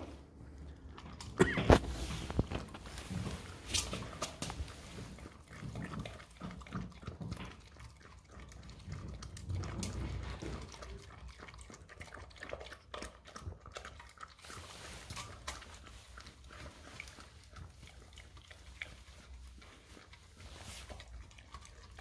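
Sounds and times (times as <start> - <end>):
dog lapping and chewing: 0.0 - 22.0.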